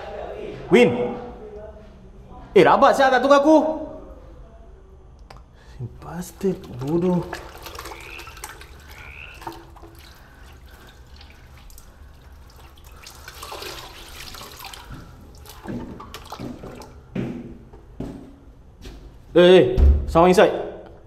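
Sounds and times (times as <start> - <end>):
hands splashing in water basin: 6.0 - 17.1.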